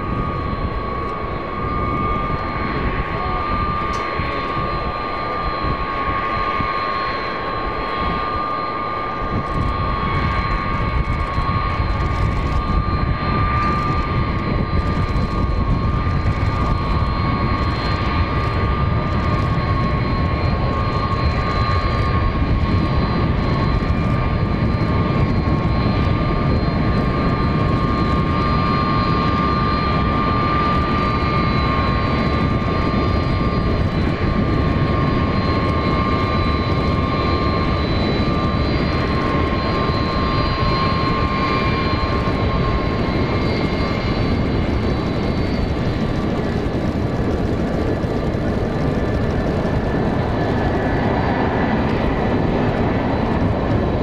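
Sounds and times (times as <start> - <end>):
high jet whine: 0.0 - 54.0
jet engine rumble: 0.0 - 54.0.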